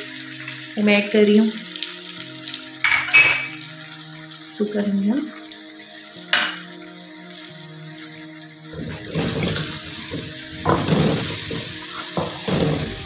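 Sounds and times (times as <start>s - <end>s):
food sizzling in hot oil: 0.0s - 13.0s
wooden spoon scraping a pan: 8.8s - 13.0s.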